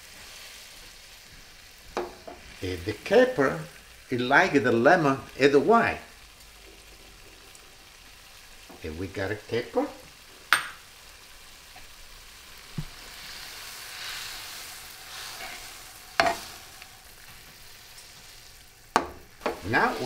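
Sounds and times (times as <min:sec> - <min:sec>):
capers sizzling in oil: 0:00.0 - 0:20.0
spatula stirring: 0:12.8 - 0:20.0.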